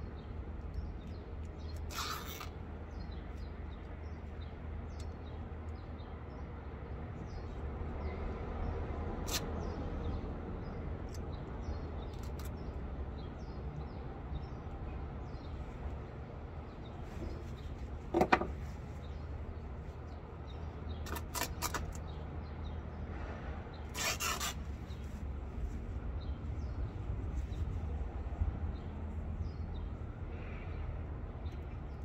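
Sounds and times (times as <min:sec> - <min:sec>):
fabric being torn: 0:01.7 - 0:02.6, 0:23.9 - 0:25.2.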